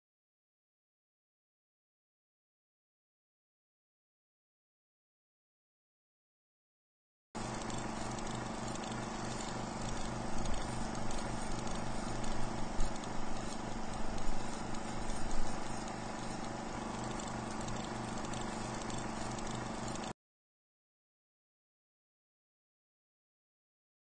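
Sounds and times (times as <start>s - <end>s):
film projector whirring: 7.4s - 20.1s.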